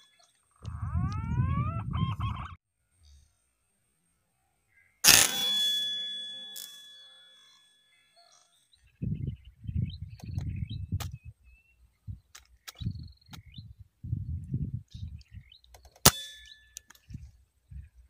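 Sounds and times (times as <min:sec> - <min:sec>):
birds chirping: 0:00.0 - 0:03.2, 0:04.4 - 0:18.0
low rumbling noise: 0:00.6 - 0:02.6
air rifle shot: 0:05.0 - 0:05.8
brief ringing tone: 0:05.1 - 0:08.2.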